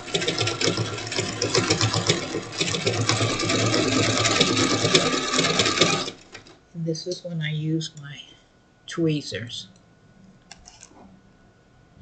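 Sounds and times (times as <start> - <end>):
sewing machine clattering: 0.0 - 6.6.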